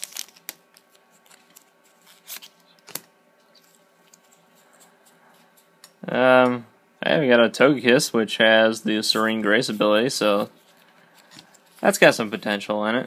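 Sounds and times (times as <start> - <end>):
trading cards being handled: 0.0 - 6.0.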